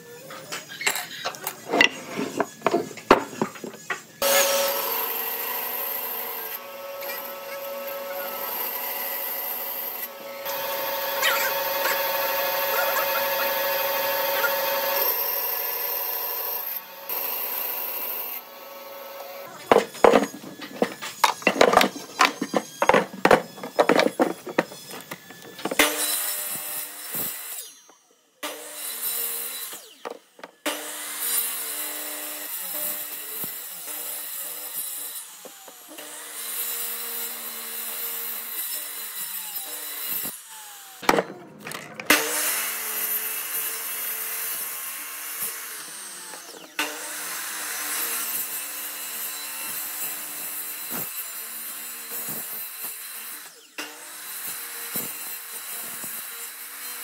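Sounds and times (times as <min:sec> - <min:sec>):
miter saw cutting log: 0:00.6 - 0:57.0.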